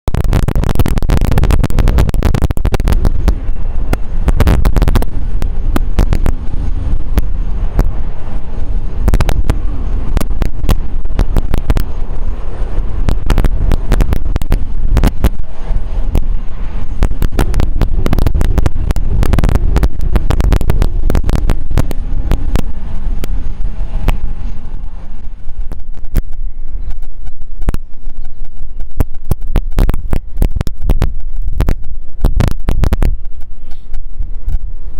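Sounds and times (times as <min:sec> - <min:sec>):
wind buffeting microphone: 0:00.0 - 0:34.9.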